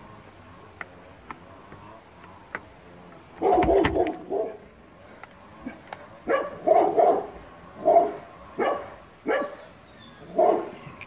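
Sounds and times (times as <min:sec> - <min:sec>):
dog barking: 0:03.4 - 0:04.6, 0:06.2 - 0:10.9.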